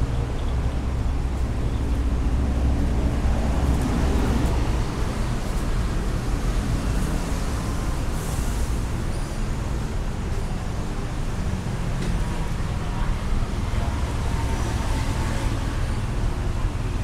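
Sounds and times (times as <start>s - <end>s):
low rumble of traffic: 0.0s - 17.0s
faint voices of people passing: 10.3s - 14.4s.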